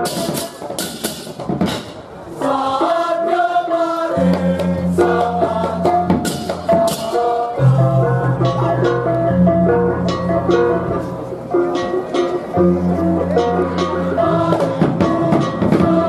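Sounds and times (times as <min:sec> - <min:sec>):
gamelan melody: 0:04.1 - 0:16.0
low gong tones: 0:07.6 - 0:14.2.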